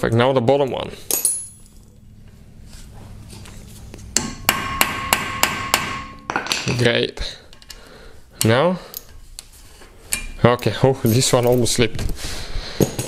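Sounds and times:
hammer striking metal: 0:04.2 - 0:06.7.

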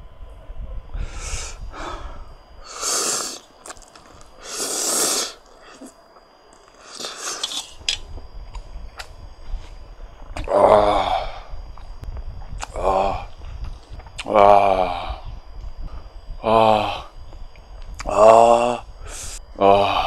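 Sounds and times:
man breathing hard: 0:01.0 - 0:03.4, 0:10.6 - 0:11.6, 0:15.9 - 0:17.2, 0:18.0 - 0:20.0.

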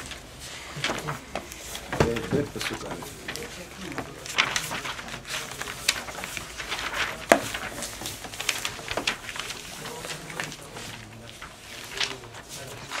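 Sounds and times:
book pages rustling: 0:00.0 - 0:13.0.

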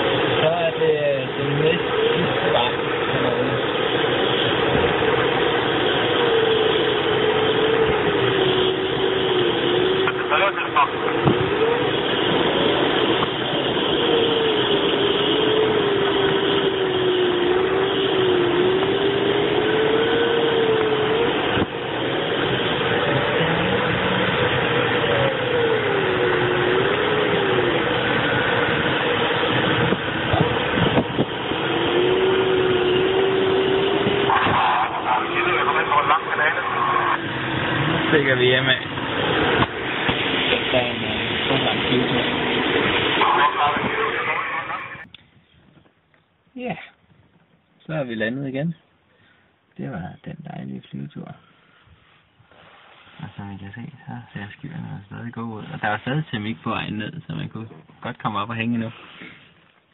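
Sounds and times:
rushing airflow: 0:18.5 - 0:45.4.

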